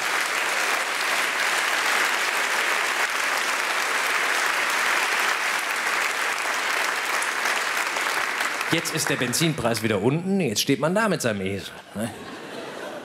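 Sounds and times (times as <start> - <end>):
studio audience applauding: 0.0 - 10.2.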